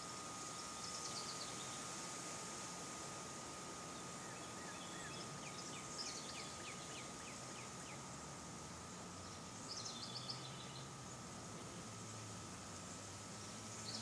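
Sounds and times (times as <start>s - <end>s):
steady outdoor hiss: 0.0s - 14.0s
small birds chirping: 0.5s - 2.0s, 3.9s - 8.2s, 9.1s - 11.3s, 13.4s - 14.0s.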